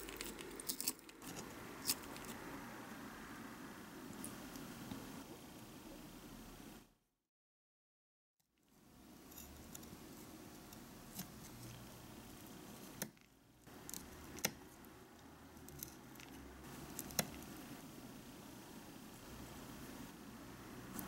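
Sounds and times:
faint steady hum: 0.0 - 7.0, 8.7 - 21.0.

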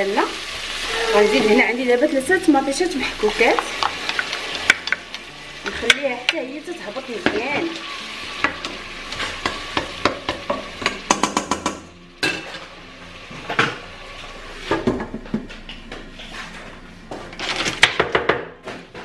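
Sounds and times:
soft sizzle: 0.0 - 14.6
spoon stirring and scraping pot: 3.2 - 6.4
spoon tapping pot: 9.4 - 11.8.

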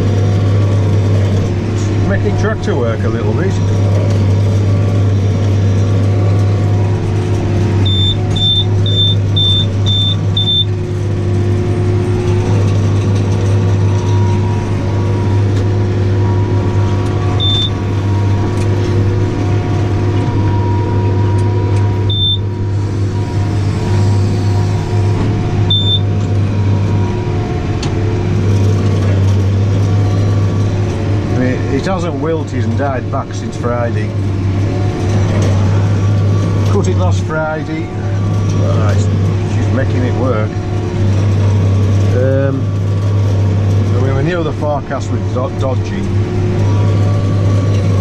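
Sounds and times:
tractor engine under load: 0.0 - 48.0
short high electronic beeps: 7.9 - 10.7, 17.4 - 17.8, 22.1 - 22.4, 25.7 - 26.0.

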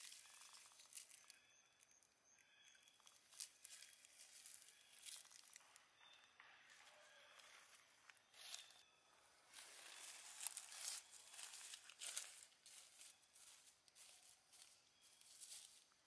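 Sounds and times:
dry leaves rustling and crackling: 0.0 - 1.4, 3.0 - 5.6, 8.3 - 8.8, 9.5 - 16.0.

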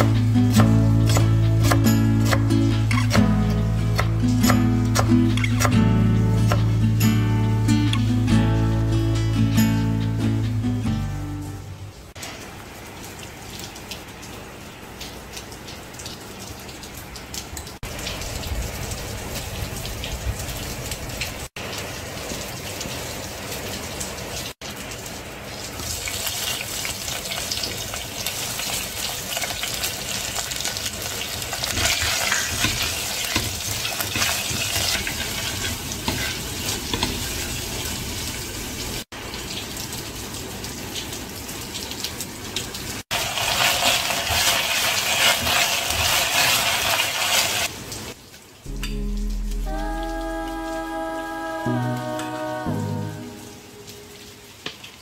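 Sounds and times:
spices sizzling in hot oil: 25.6 - 39.6, 42.9 - 48.2
spatula stirring in a pot: 31.7 - 37.2.

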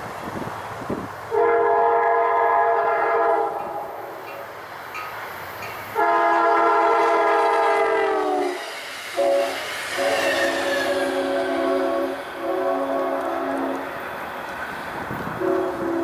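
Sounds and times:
train rumbling: 0.0 - 16.0
train air horn blasts: 1.3 - 4.0, 6.0 - 13.9, 15.3 - 16.0.

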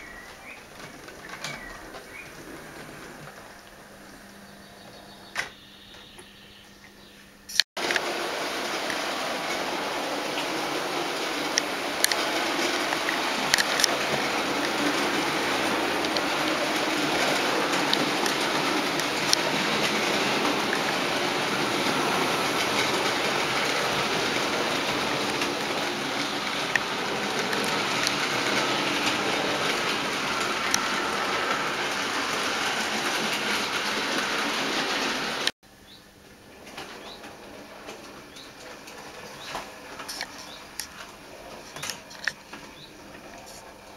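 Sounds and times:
wheels clicking over rail joints: 0.0 - 6.4, 7.5 - 35.5, 36.3 - 43.9
model train motors whirring: 7.5 - 35.5.

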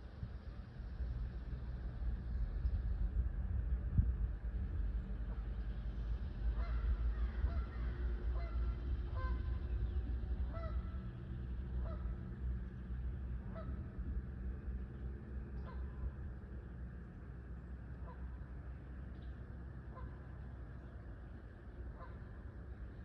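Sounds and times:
low steady rumble: 0.0 - 23.0
bird calling: 19.9 - 21.0, 21.7 - 23.0.

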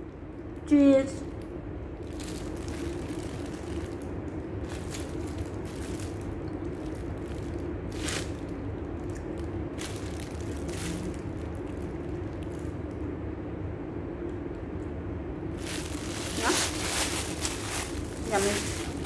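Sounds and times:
steady low hum: 0.0 - 19.0
plastic bag crinkling: 2.0 - 12.9, 15.5 - 19.0.

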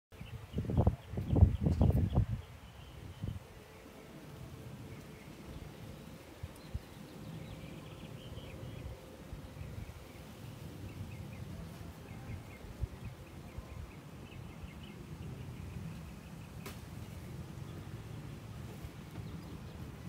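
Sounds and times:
small birds chirping: 0.2 - 20.0.

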